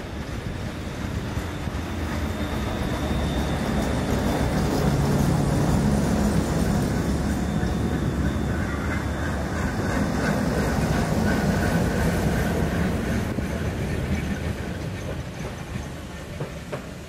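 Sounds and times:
streetcar rumbling on rails: 0.0s - 17.0s.

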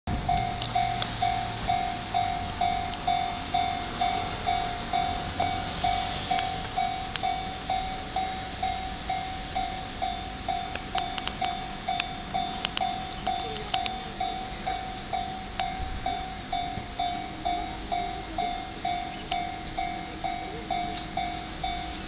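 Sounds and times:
scattered clicks: 0.3s - 1.4s, 6.3s - 7.3s, 10.7s - 14.8s, 19.1s - 19.9s
level crossing bell clanging: 0.3s - 22.0s.

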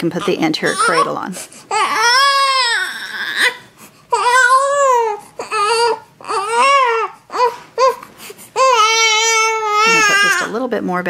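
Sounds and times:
baby crying: 0.2s - 10.5s.

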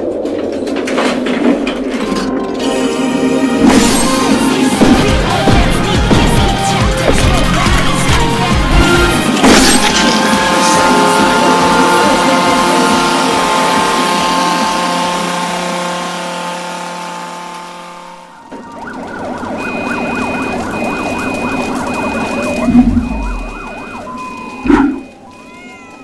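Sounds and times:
wavering sirens: 2.2s - 26.0s
sustained music chord: 2.3s - 7.0s, 8.7s - 18.5s
steady beeping alarm: 18.2s - 26.0s.

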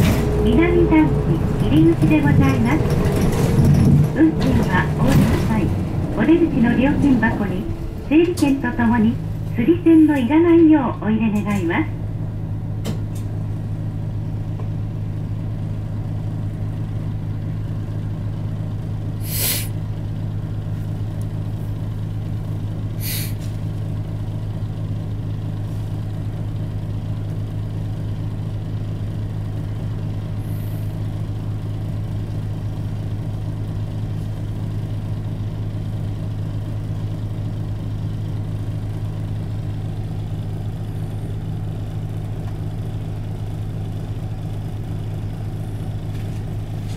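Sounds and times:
bus diesel engine idling: 0.0s - 46.9s
air release hisses: 19.2s - 19.8s, 23.0s - 23.4s.

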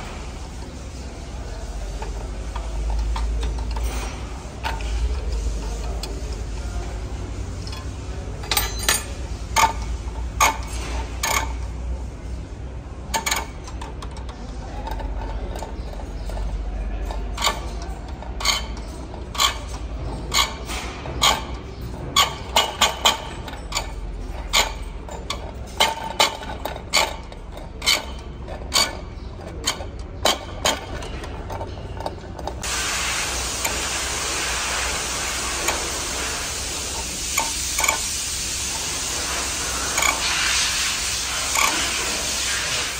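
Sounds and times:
steady hiss: 32.6s - 42.9s.

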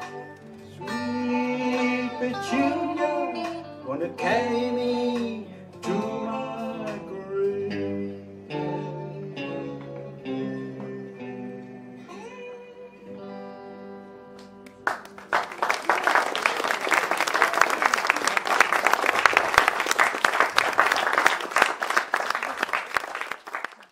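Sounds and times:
guitar chord ringing: 7.8s - 14.6s
audience applause: 14.7s - 23.9s.

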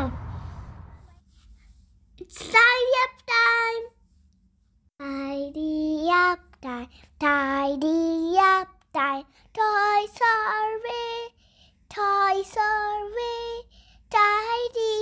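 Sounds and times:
young child singing: 5.0s - 15.0s.

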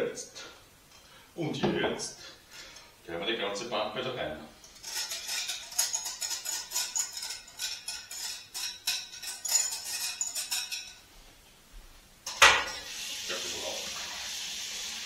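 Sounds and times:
metal whisk scraping a bowl: 4.6s - 11.0s.

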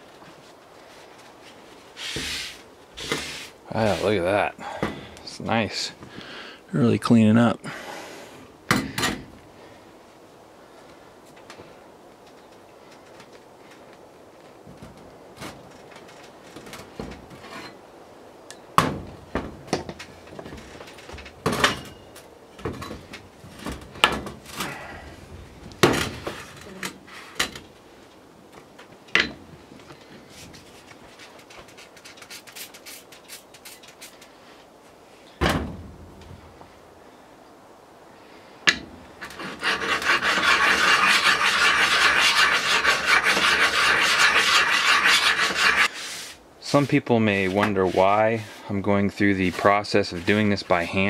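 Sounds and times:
heavy thump: 35.4s - 36.4s.

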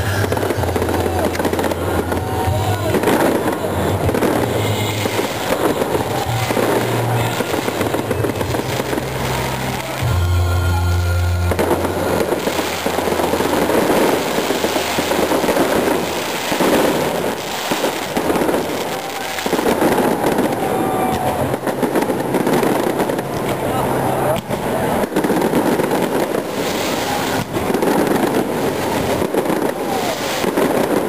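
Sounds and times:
fireworks bursting and crackling: 0.0s - 31.0s
music with low bass notes: 9.9s - 13.7s.

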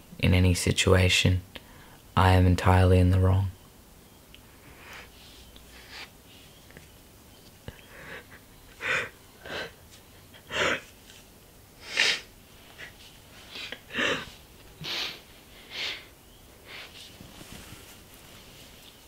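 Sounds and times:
man sobbing: 7.7s - 10.9s, 13.5s - 15.2s.

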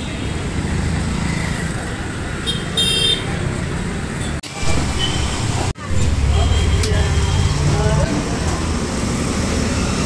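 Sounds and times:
road traffic hum: 0.0s - 10.0s.

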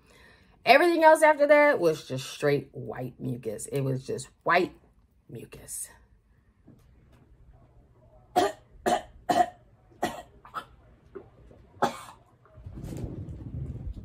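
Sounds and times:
woman retching and coughing: 8.3s - 10.8s, 11.8s - 12.3s.

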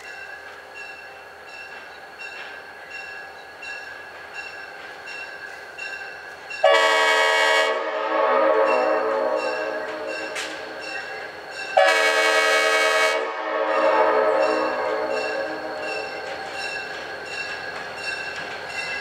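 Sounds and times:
locomotive air horn blast: 6.6s - 10.2s, 11.8s - 15.8s
bell ringing: 8.6s - 11.8s, 14.3s - 19.0s.

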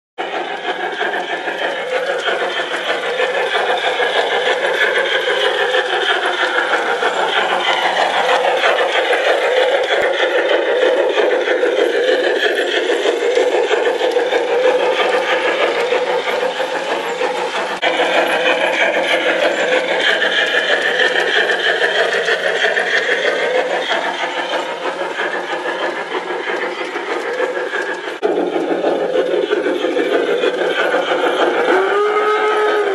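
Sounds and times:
model train whirring and rattling: 0.2s - 32.9s.

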